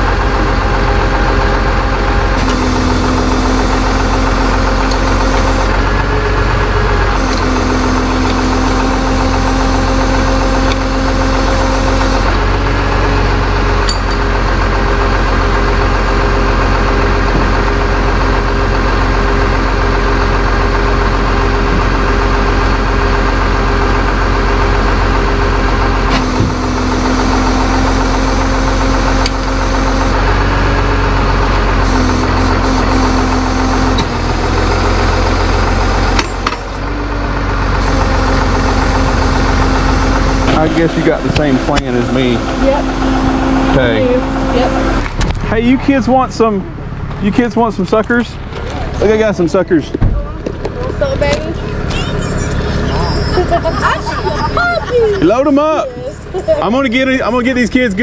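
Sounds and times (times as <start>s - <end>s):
hydraulics whine and hiss: 0.0s - 13.2s, 26.0s - 30.9s, 31.5s - 45.1s
truck engine running: 0.0s - 58.0s.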